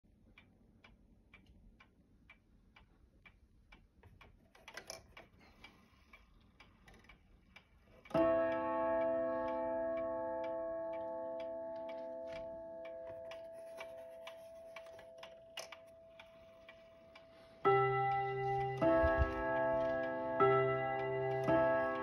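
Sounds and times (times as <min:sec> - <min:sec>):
pendulum clock ticking: 0:00.1 - 0:22.0
clock rattle: 0:04.1 - 0:22.0
clock gong ringing: 0:08.2 - 0:16.6, 0:17.6 - 0:22.0.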